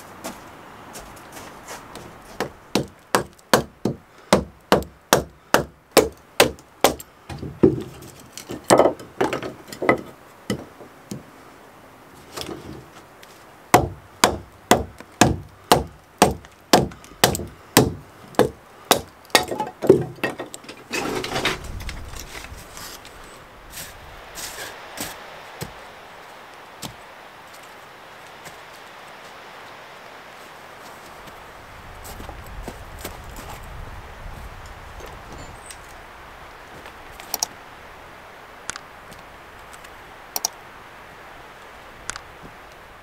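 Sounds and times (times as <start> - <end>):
wood chopping strikes: 2.4 - 11.2, 13.7 - 20.6
wooden sticks clattering: 6.9 - 10.9, 19.3 - 24.8.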